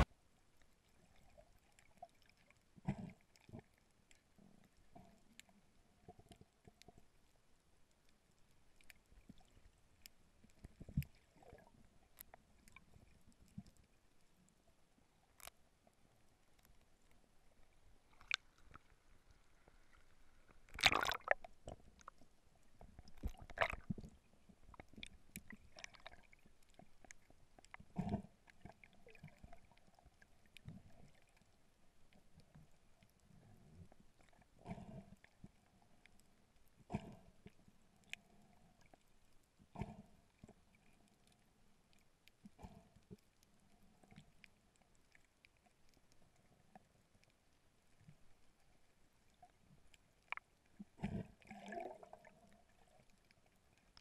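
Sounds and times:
underwater clicks and crackles: 0:00.0 - 0:54.0
noisy underwater swishes: 0:15.4 - 0:31.4, 0:49.4 - 0:53.8.

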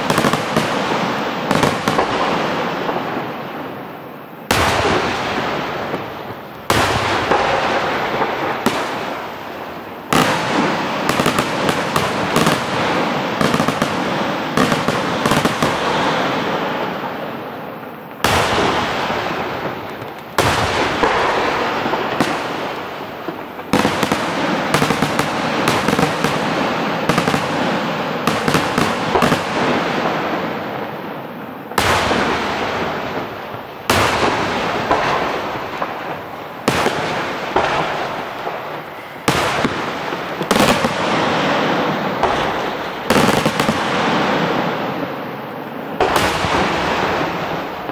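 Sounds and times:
fireworks bangs with crackling: 0:00.0 - 0:47.9.

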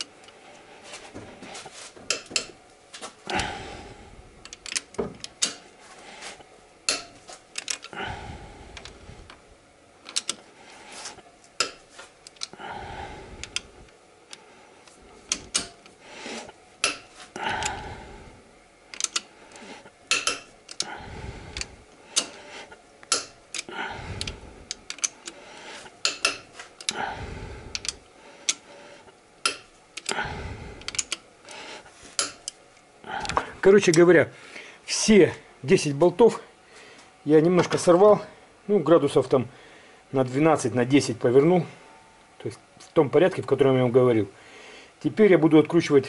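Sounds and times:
person breathing heavily: 0:03.0 - 0:04.6, 0:05.8 - 0:06.5, 0:07.7 - 0:09.4, 0:10.4 - 0:11.2, 0:12.4 - 0:32.4, 0:33.0 - 0:33.7, 0:34.3 - 0:34.9, 0:36.4 - 0:37.2, 0:39.5 - 0:40.1, 0:44.3 - 0:45.0.

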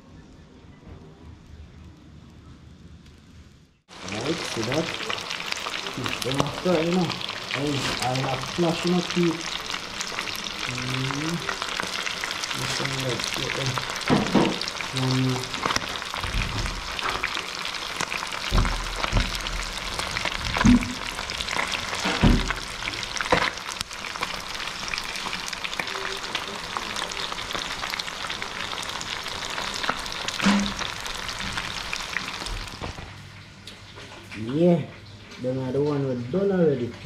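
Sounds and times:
fish frying in hot oil: 0:03.9 - 0:33.2.

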